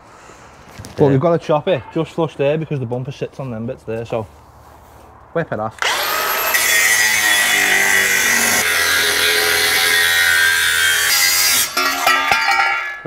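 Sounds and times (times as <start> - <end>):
grinder cutting steel: 5.8 - 13.0.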